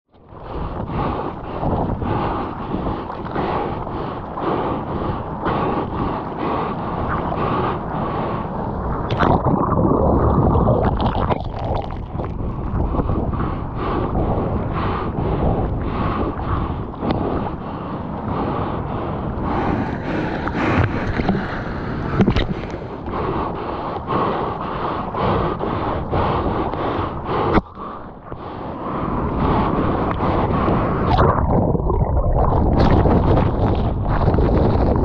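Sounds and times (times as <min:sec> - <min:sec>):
wind rushing: 0:00.6 - 0:35.0
muffled underwater sound: 0:02.7 - 0:14.4, 0:29.4 - 0:35.0
water splashing: 0:09.0 - 0:12.7
paddle strokes in water: 0:19.5 - 0:28.4.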